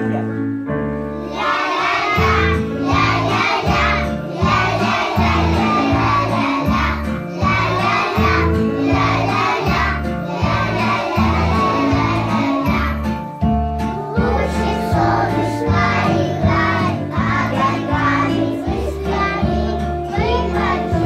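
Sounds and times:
children singing together: 1.1 - 21.0.

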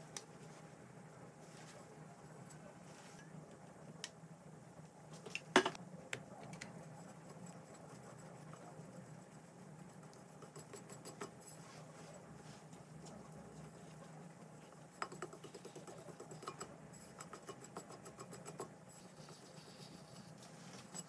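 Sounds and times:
low steady hum: 0.0 - 21.0
pastry brush dabbing sponge: 6.7 - 21.0.

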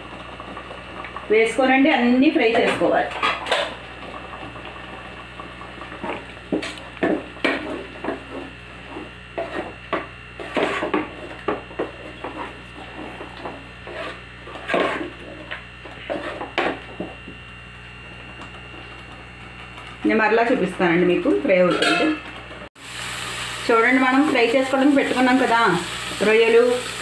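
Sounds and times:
wooden spatula scraping a pot: 7.5 - 9.8, 10.4 - 16.9.

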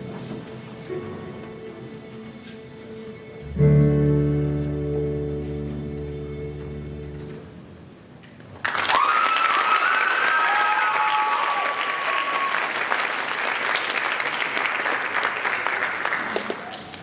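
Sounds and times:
audience applause: 8.6 - 17.0.

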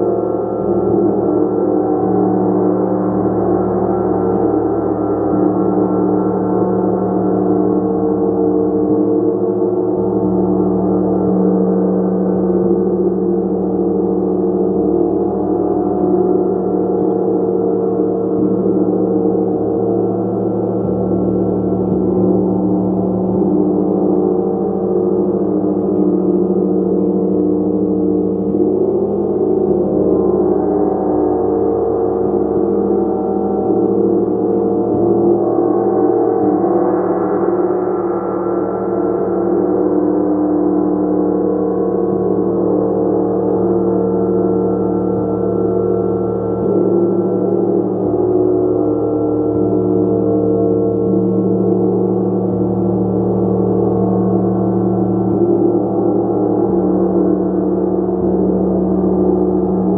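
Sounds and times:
gong sustained wash: 0.0 - 59.9.

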